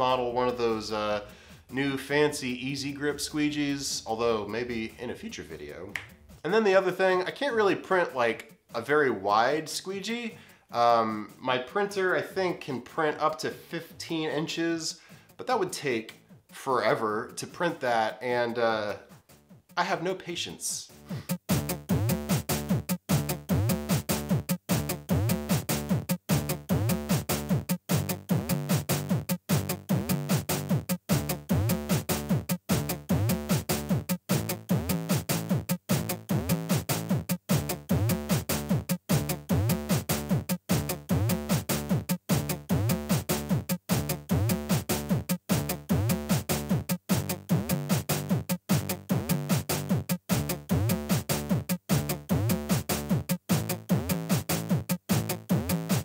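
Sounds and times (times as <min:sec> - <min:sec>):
electronic drum machine beat: 0:00.0 - 0:06.4, 0:21.2 - 0:56.0.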